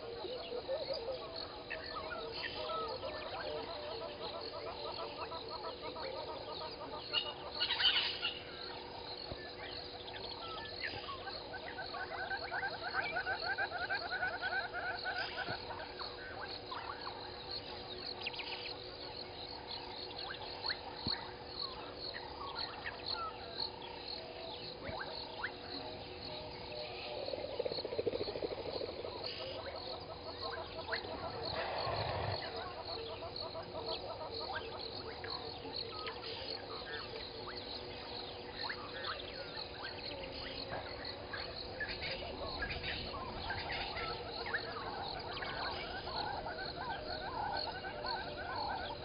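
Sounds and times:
insects high trilling: 0:00.0 - 0:49.0
fast-pulsing frog calls: 0:24.7 - 0:35.6, 0:36.5 - 0:49.0.

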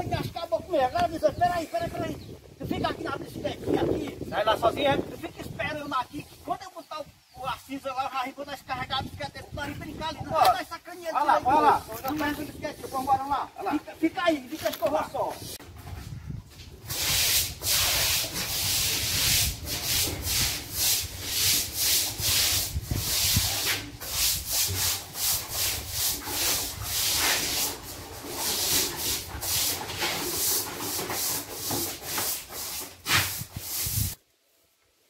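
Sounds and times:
sandpaper rasping on plaster: 0:11.2 - 0:13.4, 0:16.8 - 0:34.2.

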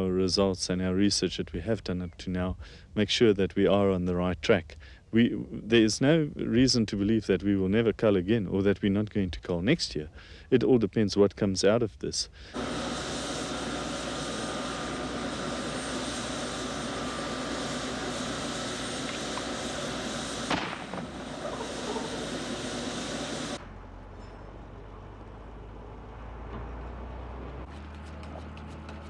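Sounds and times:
helicopter engine and rotor: 0:12.6 - 0:23.6
low hum: 0:12.6 - 0:28.3.

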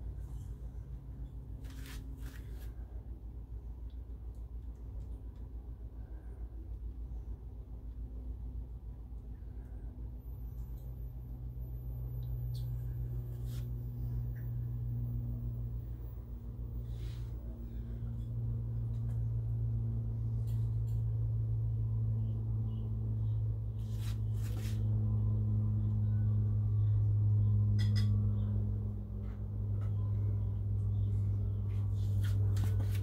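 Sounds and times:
steady low hum: 0:00.0 - 0:33.0
faint steady tone: 0:05.0 - 0:23.8, 0:25.0 - 0:31.9.

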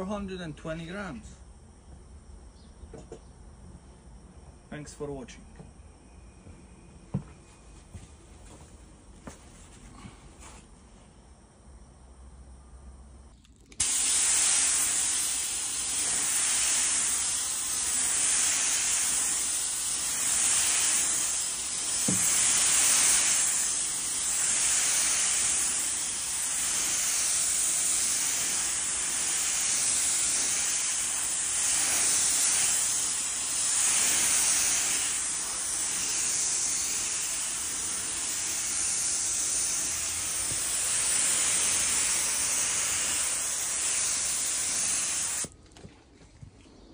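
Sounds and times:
paint spray gun hissing: 0:13.8 - 0:45.5.

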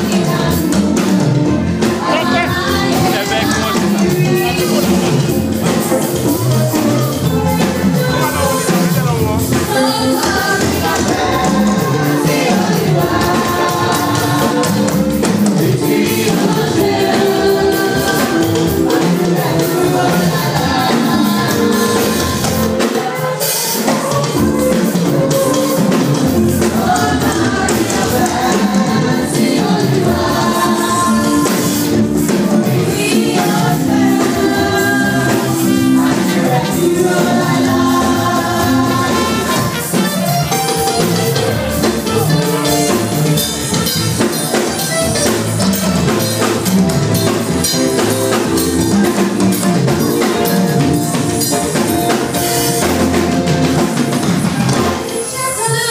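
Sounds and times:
children's choir singing: 0:00.0 - 0:06.9, 0:07.6 - 0:40.3.

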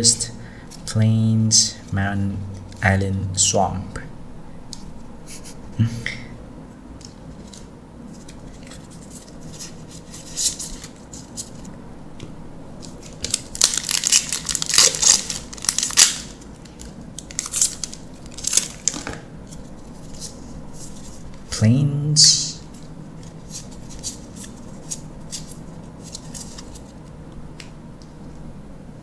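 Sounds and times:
foil wrapper crinkling and tearing: 0:13.0 - 0:19.1.

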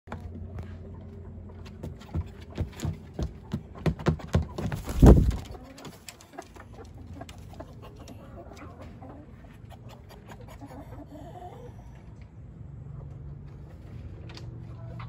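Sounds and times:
rooster taps and scuffs: 0:01.6 - 0:06.5.

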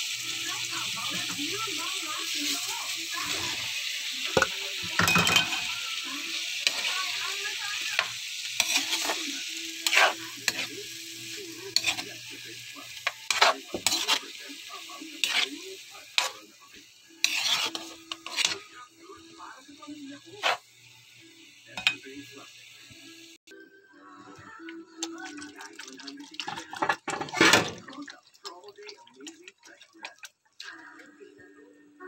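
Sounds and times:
food sizzling in a wok: 0:00.0 - 0:23.4
spatula scraping a pan: 0:02.3 - 0:03.7, 0:04.3 - 0:10.8, 0:11.6 - 0:12.2, 0:13.0 - 0:14.4, 0:15.2 - 0:16.5, 0:17.1 - 0:18.8, 0:20.2 - 0:20.6.

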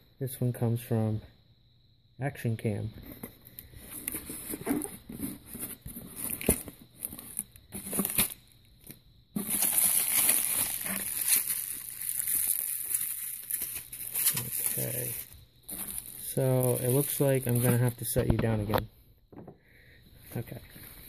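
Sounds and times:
bubble wrap crinkling: 0:04.0 - 0:18.1.

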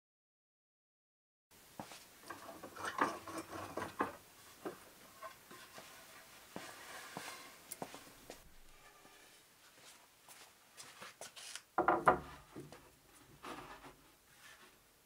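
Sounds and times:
wooden panel knocking: 0:11.8 - 0:12.3.

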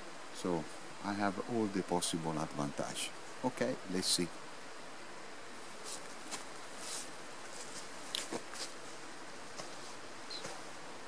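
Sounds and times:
outdoor background hiss: 0:00.0 - 0:11.0
soft rustles and clicks: 0:05.8 - 0:10.8.

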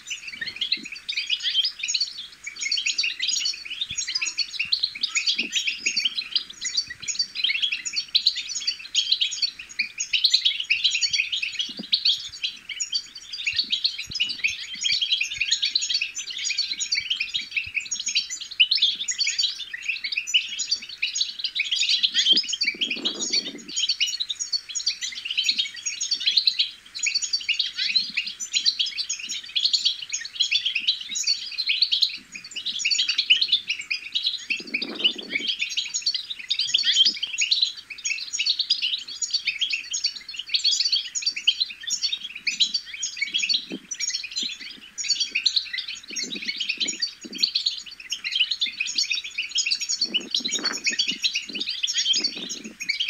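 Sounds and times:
goldfinch twittering: 0:00.1 - 0:53.0.

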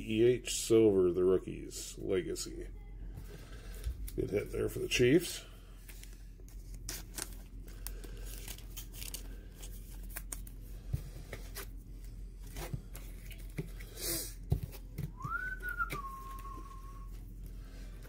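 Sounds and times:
plastic card sleeve rustling: 0:05.8 - 0:11.8
plastic crinkle: 0:05.9 - 0:10.6
whistled note: 0:15.2 - 0:17.1.

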